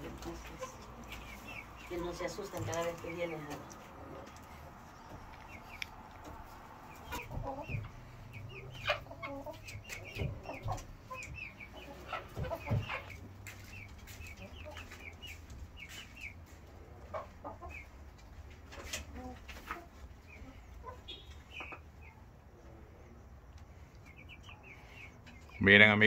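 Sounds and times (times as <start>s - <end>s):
hens clucking: 0.0s - 26.0s.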